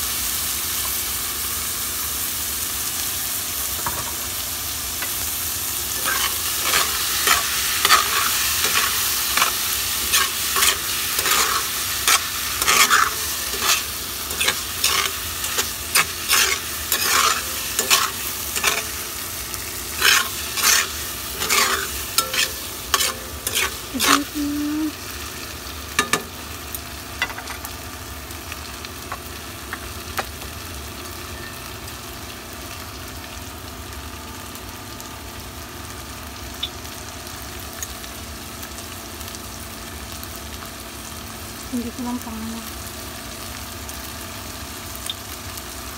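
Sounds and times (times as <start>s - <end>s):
meat and tofu sizzling in a pan: 0.0s - 45.9s
spatula scraping a pan: 6.0s - 19.2s, 19.8s - 24.4s.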